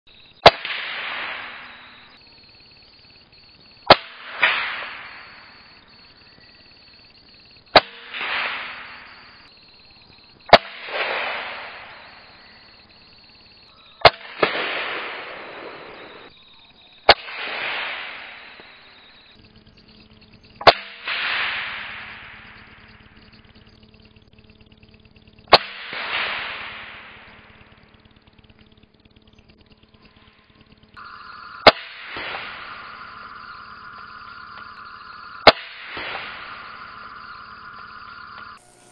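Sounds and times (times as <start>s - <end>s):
rifle shots: 0.4s - 2.2s, 7.7s - 9.5s, 10.5s - 12.4s, 14.0s - 16.3s, 17.1s - 18.8s, 25.5s - 27.5s, 31.6s - 32.9s, 35.4s - 36.6s.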